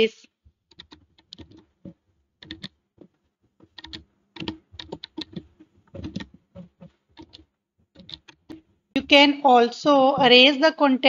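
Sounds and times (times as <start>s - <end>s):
computer keyboard typing: 0.6s - 9.1s.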